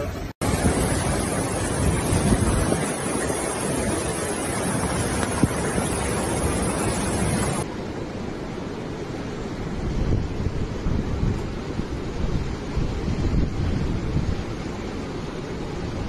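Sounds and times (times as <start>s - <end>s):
wind noise on microphone: 0.0s - 16.0s
floodwater rushing: 0.4s - 7.7s.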